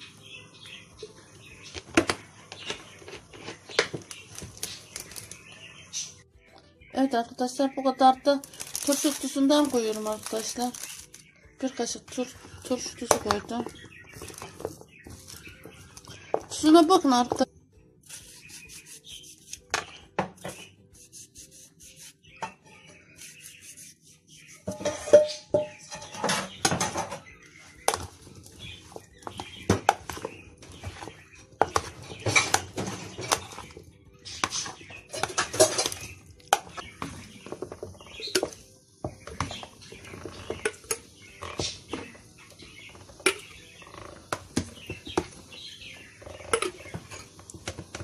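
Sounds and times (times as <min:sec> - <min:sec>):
wet squelches of olives: 0:08.1 - 0:16.8.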